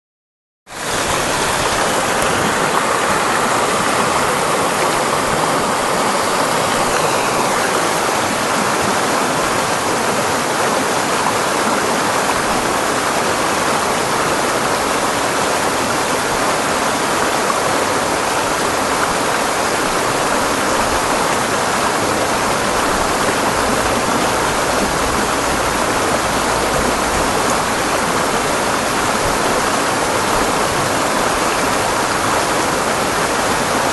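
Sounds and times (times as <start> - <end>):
creek rushing over rocks: 0.7 - 33.9.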